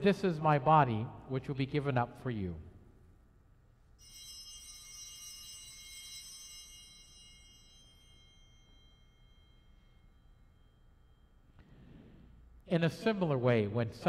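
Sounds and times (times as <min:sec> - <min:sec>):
altar bell ringing: 0:04.0 - 0:12.7.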